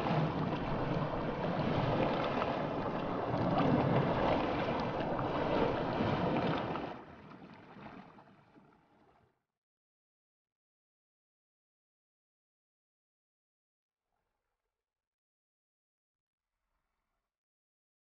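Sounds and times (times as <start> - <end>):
river water rushing: 0.0 - 6.8.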